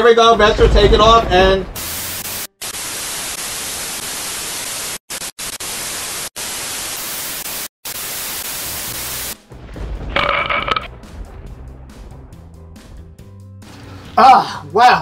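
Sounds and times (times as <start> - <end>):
tv static hiss: 1.8 - 9.4.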